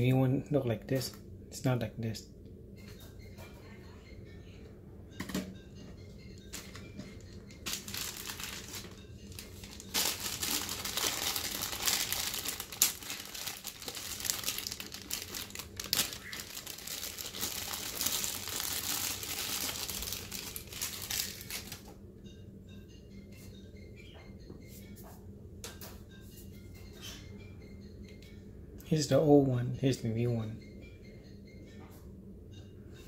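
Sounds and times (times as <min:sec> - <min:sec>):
plastic bag crinkling: 0:07.6 - 0:21.9.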